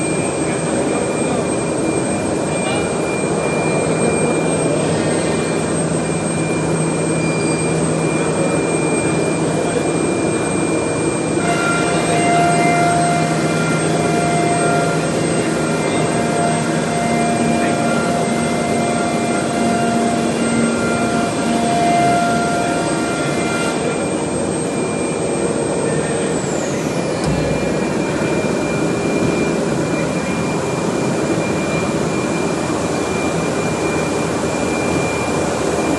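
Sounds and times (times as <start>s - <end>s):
machine whining: 0.0s - 35.9s
low thump: 27.2s - 28.2s.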